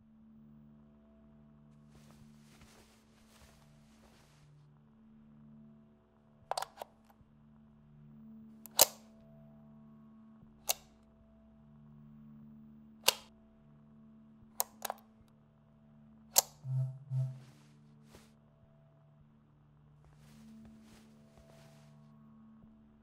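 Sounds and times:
sharp switch clicks: 13.0 - 13.3
steady low hum: 16.6 - 17.8.

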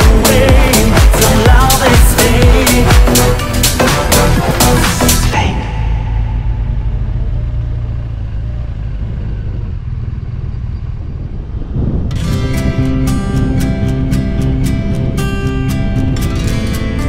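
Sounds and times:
guitar music: 0.0 - 7.4, 12.0 - 17.0
motorcycle engine rumble: 0.0 - 17.0.

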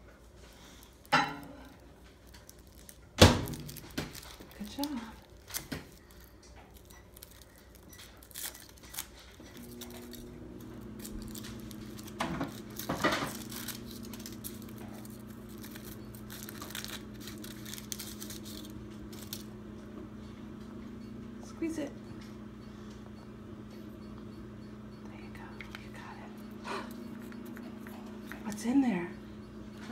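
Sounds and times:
steady low hum: 0.0 - 29.9
foil wrapper crackling: 0.6 - 19.6.

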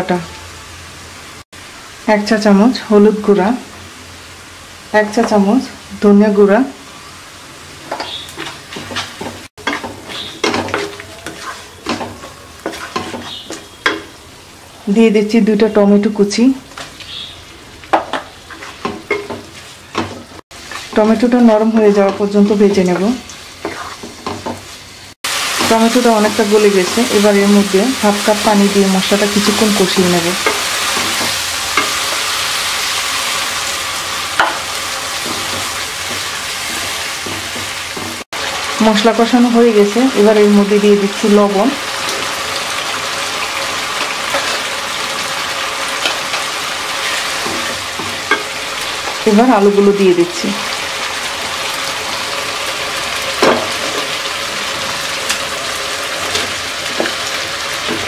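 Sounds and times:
oil sizzling: 0.0 - 58.0
spatula scraping in a pan: 7.8 - 14.1, 17.9 - 21.3, 21.9 - 24.8, 29.4 - 38.2, 42.0 - 45.3, 45.9 - 49.2.

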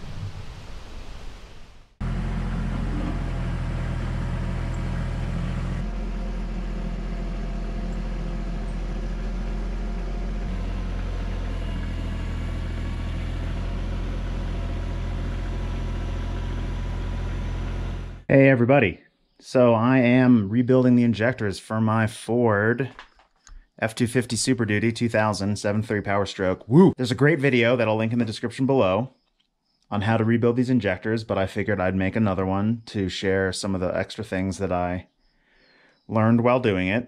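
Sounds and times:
diesel engine droning: 2.0 - 18.3.

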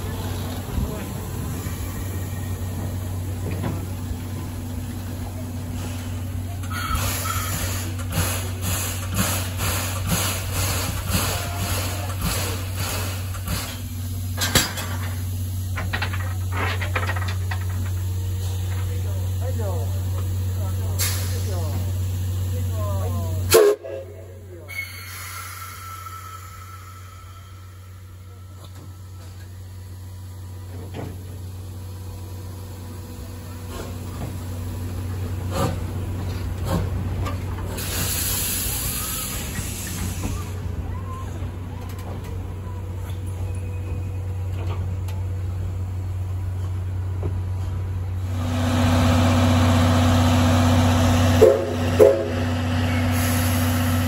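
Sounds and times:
steam locomotive low hum: 0.0 - 54.0
steam hissing: 5.6 - 14.4, 19.2 - 24.0, 24.6 - 30.6, 37.7 - 40.8, 48.2 - 54.0.

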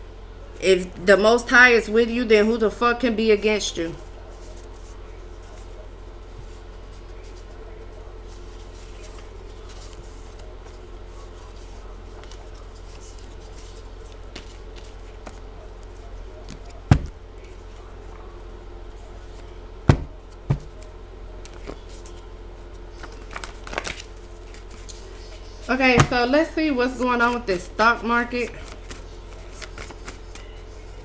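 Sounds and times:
steady low hum: 0.0 - 31.0
cards being handled: 6.4 - 17.8, 19.1 - 26.2, 28.6 - 31.0
cards knocking on table: 16.9 - 17.2, 19.9 - 20.8, 26.0 - 26.2.

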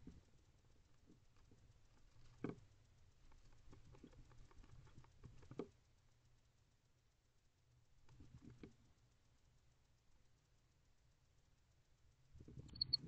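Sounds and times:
owl scratching and tapping: 0.0 - 5.8.

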